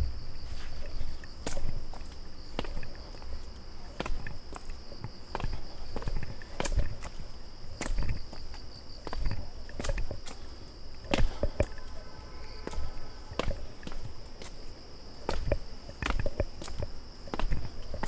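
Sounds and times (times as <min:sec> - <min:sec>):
footsteps on a trail: 0:00.0 - 0:18.0
insects droning: 0:00.0 - 0:18.0.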